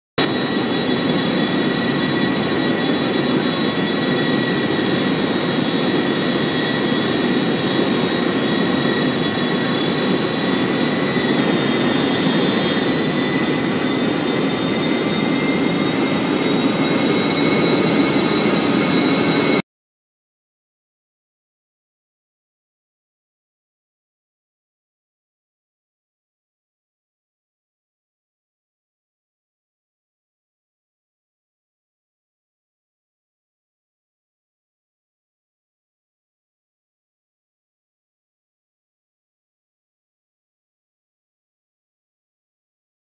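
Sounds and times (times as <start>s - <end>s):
engine and airflow rush: 0.2s - 19.6s
high engine whine: 0.2s - 19.6s.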